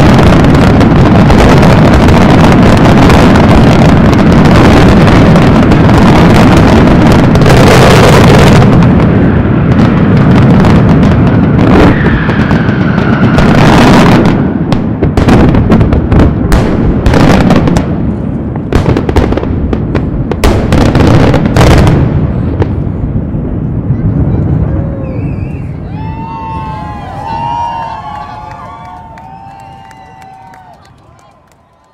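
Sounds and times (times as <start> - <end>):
sharp bangs and crackles: 0.0 - 25.6
rumble of firework bursts: 0.0 - 31.9
firework whistle falling in pitch: 11.7 - 14.0, 24.9 - 31.9.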